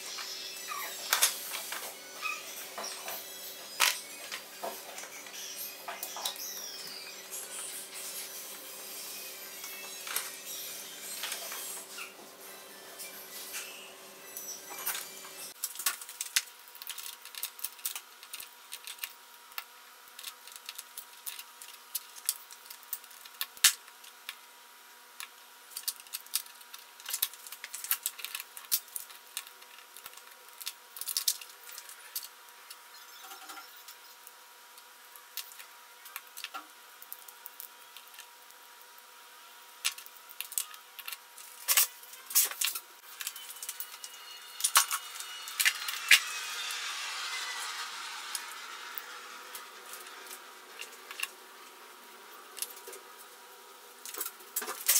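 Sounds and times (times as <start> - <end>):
small parts clicking and tapping: 15.6 - 24.4, 25.2 - 38.6, 39.8 - 46.5, 47.8 - 51.3.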